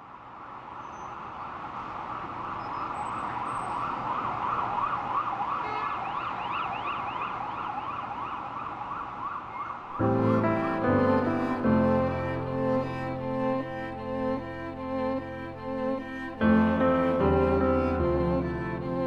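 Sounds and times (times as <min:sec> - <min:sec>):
city traffic noise: 0:00.0 - 0:19.0
emergency vehicle sirens wailing: 0:01.2 - 0:10.2.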